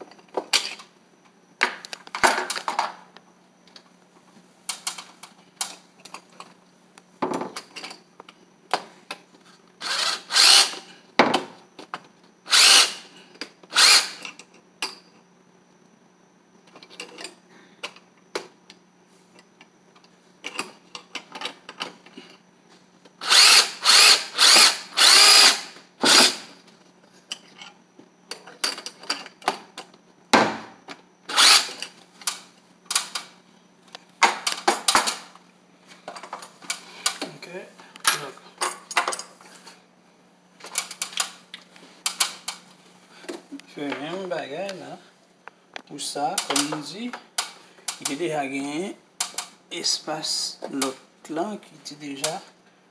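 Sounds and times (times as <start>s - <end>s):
cordless drill bursts: 9.8s - 10.8s, 12.5s - 13.1s, 13.7s - 14.2s, 23.2s - 26.6s, 31.3s - 31.8s.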